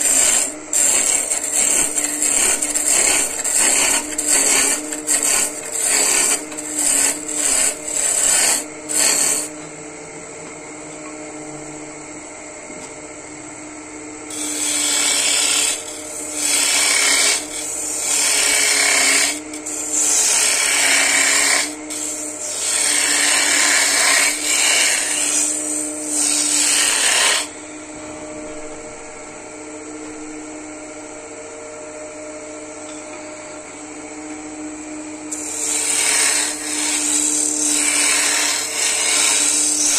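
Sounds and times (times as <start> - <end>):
hand tool cutting spinning wood: 0.0 - 9.5, 14.3 - 27.5, 35.3 - 39.9
wood lathe humming: 0.0 - 9.6, 14.3 - 27.8, 34.6 - 39.9.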